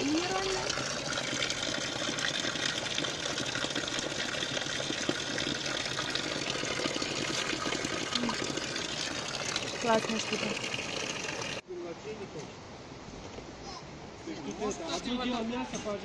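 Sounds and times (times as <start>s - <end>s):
water running from a spout: 0.0s - 11.6s
water splashing: 0.0s - 11.6s.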